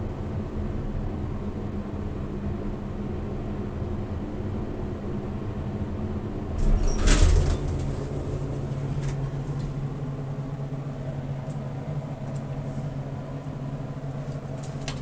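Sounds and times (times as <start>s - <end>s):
elevator motor humming: 0.0s - 15.0s
elevator doors clunk and rattle: 6.4s - 12.6s, 14.2s - 15.0s.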